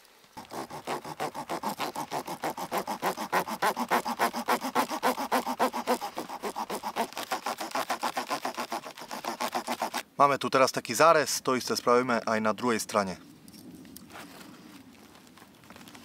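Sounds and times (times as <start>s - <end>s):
hand saw cutting wood: 0.4s - 10.0s.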